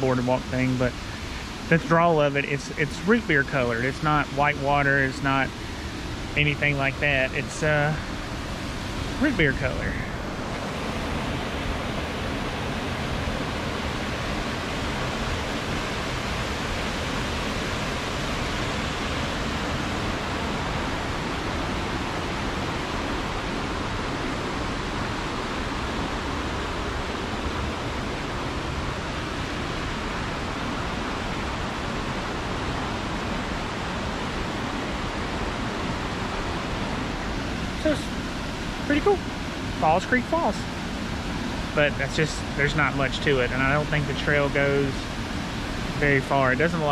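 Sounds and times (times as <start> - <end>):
creek running over rocks: 0.0 - 16.1
small waterfall rushing: 0.0 - 46.9.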